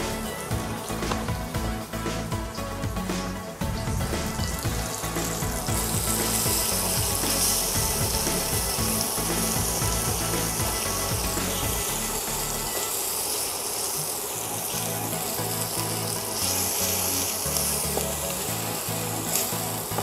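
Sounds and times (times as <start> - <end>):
background music with bass line: 0.0 - 12.9, 14.4 - 20.0
spice paste sizzling in oil: 0.0 - 20.0
spatula stirring in a pan: 4.3 - 20.0.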